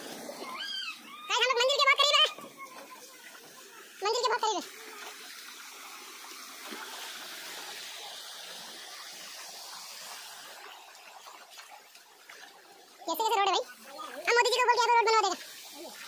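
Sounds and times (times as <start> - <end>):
flowing water hiss: 0.0 - 16.0.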